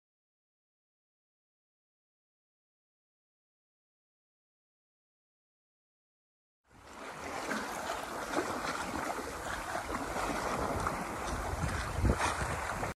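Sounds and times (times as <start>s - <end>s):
water splashing along boat hull: 6.7s - 13.0s.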